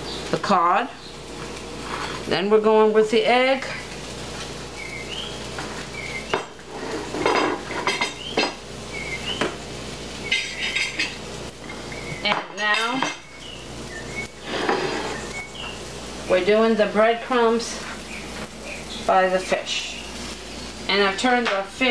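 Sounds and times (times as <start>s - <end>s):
bowls and plate clinking on tile: 6.3s - 8.6s, 10.3s - 13.3s.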